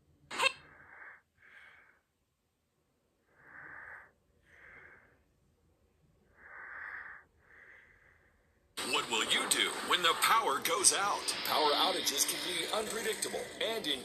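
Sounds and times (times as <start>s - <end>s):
person breathing: 0.6s - 2.3s, 3.2s - 8.8s.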